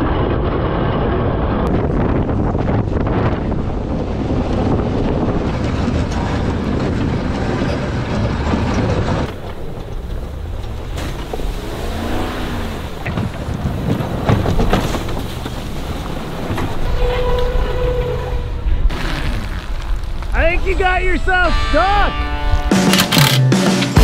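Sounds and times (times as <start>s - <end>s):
truck engine under load: 1.4s - 20.3s
plow blade shoving snow: 2.7s - 22.0s.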